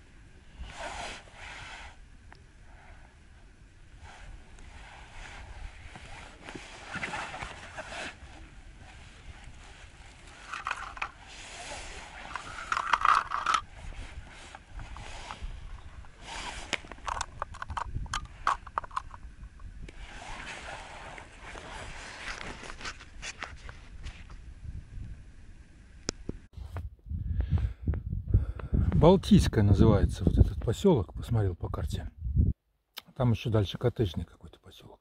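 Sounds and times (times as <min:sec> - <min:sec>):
rustling and scraping handling: 0:04.0 - 0:24.4.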